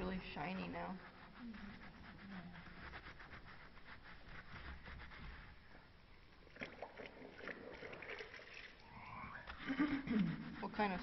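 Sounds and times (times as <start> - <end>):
sponge rubbing on metal: 0.0 - 5.9, 9.6 - 11.0.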